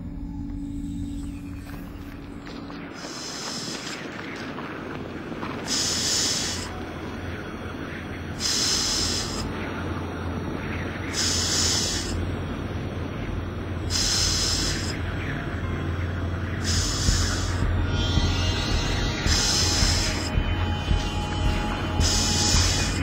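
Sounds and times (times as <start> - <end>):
low droning hum: 0.0 - 23.0
bursts of hiss: 3.0 - 4.1, 5.6 - 6.7, 8.4 - 9.5, 11.1 - 12.2, 13.9 - 15.0, 16.6 - 20.4, 21.0 - 23.0.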